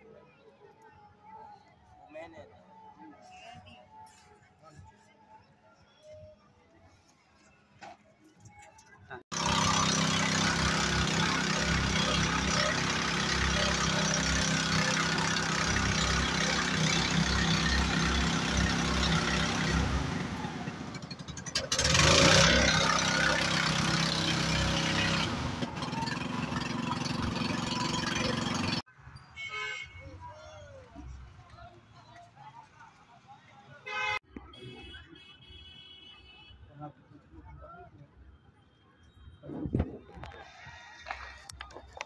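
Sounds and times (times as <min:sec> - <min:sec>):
motorboat engine running: 0:09.3 - 0:28.8.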